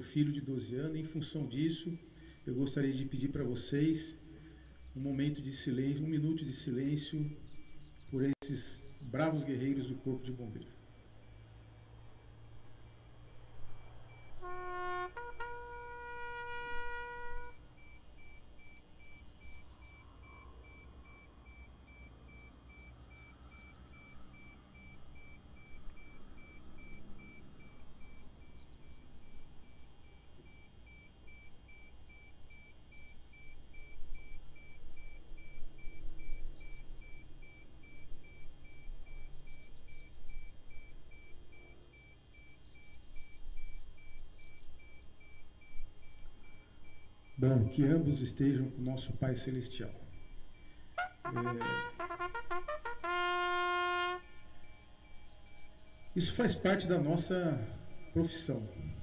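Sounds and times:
faint low rumble and hiss: 0:00.0 - 0:59.0
bugle call: 0:13.7 - 0:18.8, 0:50.1 - 0:59.0.

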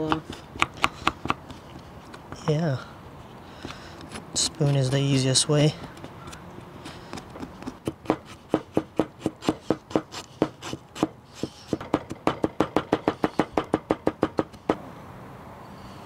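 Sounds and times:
knife chopping on cutting board: 0:07.1 - 0:14.5.

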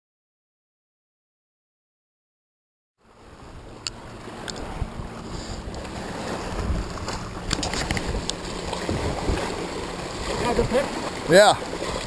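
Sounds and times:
wind rumbling on microphone: 0:03.0 - 0:12.0
small waves lapping on rocks: 0:03.1 - 0:12.0.

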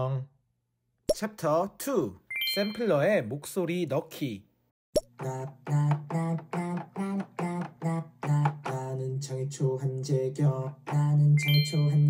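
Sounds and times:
sampled voice notes: 0:05.1 - 0:12.0.

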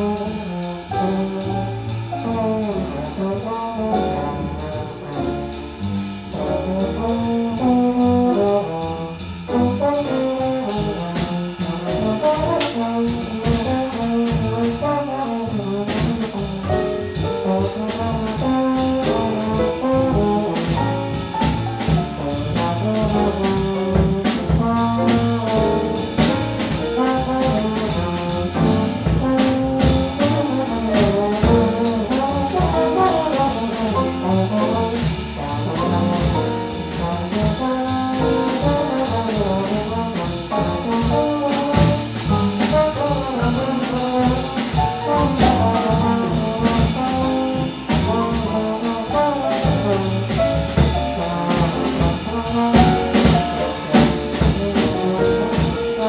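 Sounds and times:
jazz melody: 0:00.0 - 0:56.0
walking bass: 0:00.0 - 0:56.0
percussion: 0:40.6 - 0:56.0.

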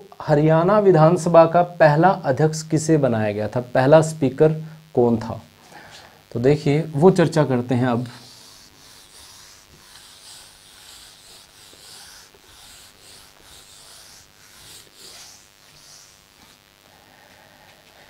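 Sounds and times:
eraser wiping a whiteboard: 0:07.9 - 0:16.6.

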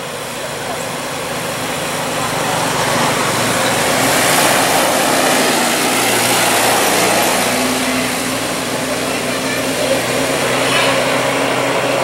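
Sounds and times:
truck engine passing by: 0:00.0 - 0:12.0
tyres on road: 0:00.0 - 0:12.0.

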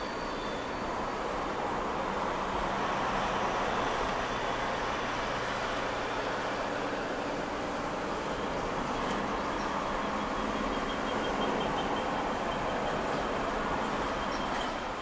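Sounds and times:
vehicle engine and road noise: 0:00.0 - 0:15.0.

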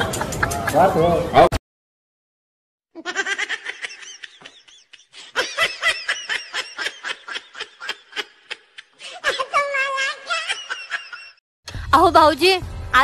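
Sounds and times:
person laughing: 0:03.0 - 0:11.4.

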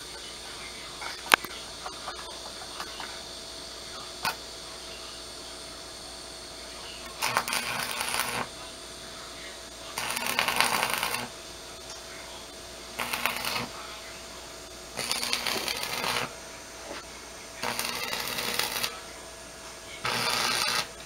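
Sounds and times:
crackling welding arc: 0:04.2 - 0:04.4, 0:07.0 - 0:08.5, 0:09.7 - 0:12.1, 0:12.8 - 0:13.8, 0:14.7 - 0:19.1, 0:20.0 - 0:21.0.

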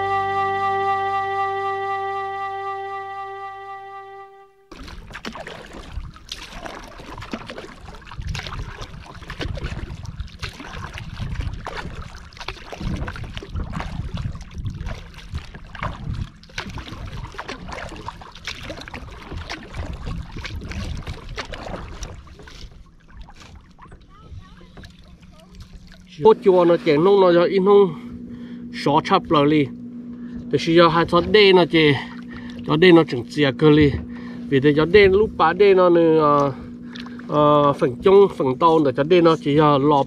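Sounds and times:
paddle strokes splashing: 0:04.7 - 0:40.0
water slapping against hull: 0:04.7 - 0:40.0
wind rumbling on microphone: 0:04.8 - 0:26.5, 0:33.6 - 0:38.2.

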